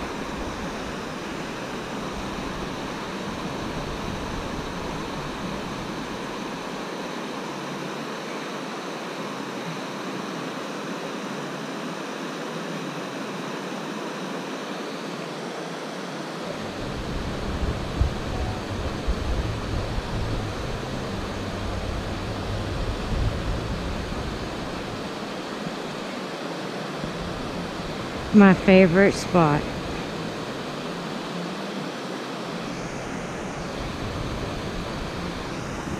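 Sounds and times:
wind buffeting the microphone: 0:16.6 - 0:25.2.

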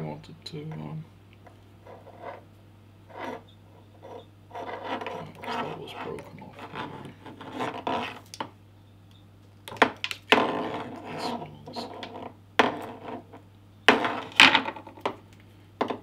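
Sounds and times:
cable scraped and twisted by hand: 0:04.6 - 0:08.4.

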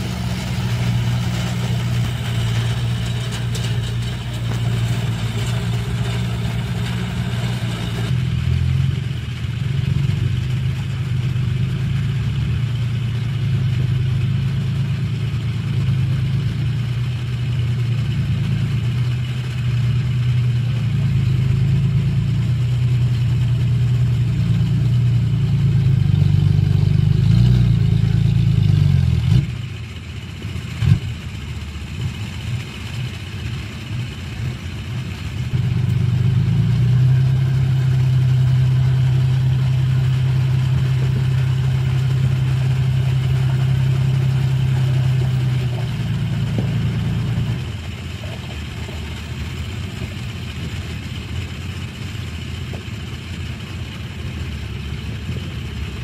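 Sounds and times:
diesel engines drone: 0:00.0 - 0:56.0.

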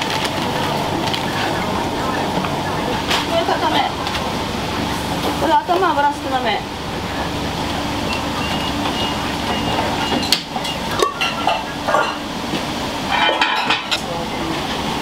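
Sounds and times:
steady rushing background noise: 0:00.0 - 0:15.0
bowls and utensils clinking: 0:10.0 - 0:12.2, 0:13.1 - 0:14.1.

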